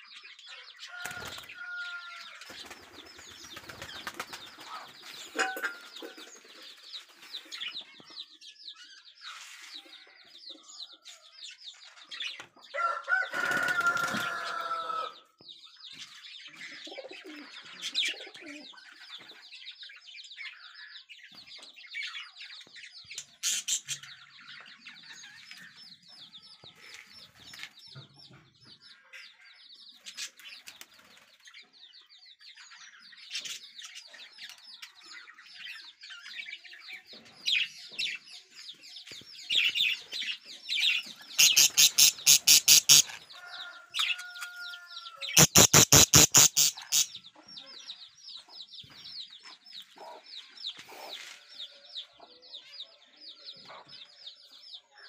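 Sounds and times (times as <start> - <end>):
budgerigars chirping: 39.5 - 49.0.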